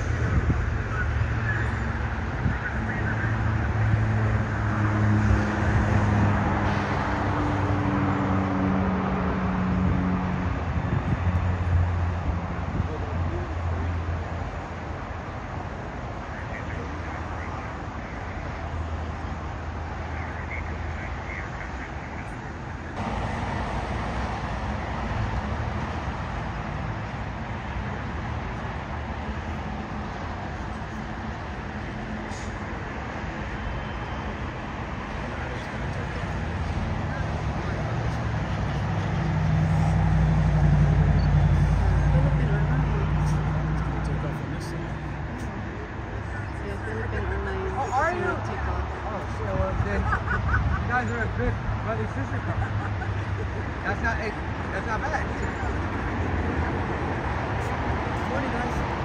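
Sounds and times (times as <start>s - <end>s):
traffic noise: 0.0s - 59.0s
jet engines roaring: 14.3s - 59.0s.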